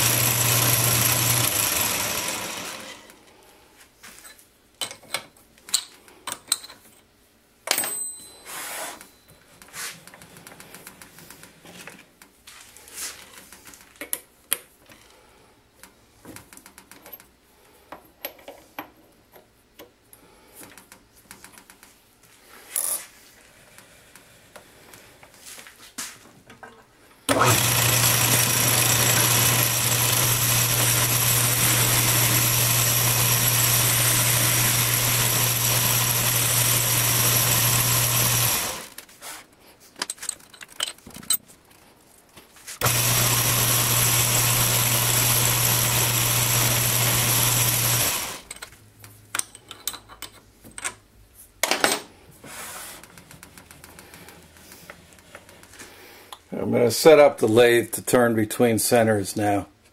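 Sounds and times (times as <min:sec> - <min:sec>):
metal lathe humming: 0:00.0 - 0:03.1, 0:27.3 - 0:38.9, 0:42.8 - 0:48.6.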